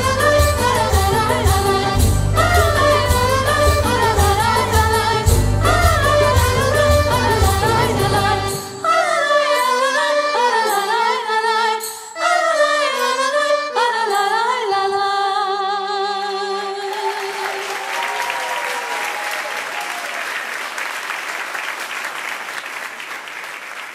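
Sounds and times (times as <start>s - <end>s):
instrumental ensemble: 0.0s - 14.0s
women singing: 0.0s - 17.7s
audience applause: 16.9s - 23.9s.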